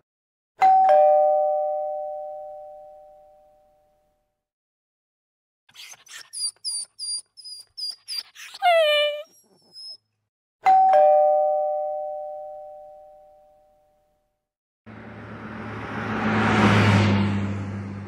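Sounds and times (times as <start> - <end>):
two-tone doorbell chime: 0.6 - 4.2, 10.6 - 14.3.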